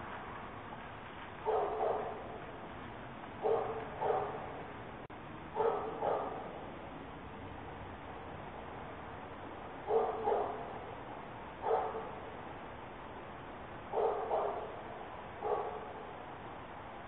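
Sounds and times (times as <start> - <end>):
steady microphone hiss: 0.0 - 17.0
dog barking: 1.4 - 2.4, 3.4 - 4.6, 5.6 - 6.5, 9.8 - 10.7, 11.6 - 12.2, 13.9 - 14.8, 15.4 - 16.0.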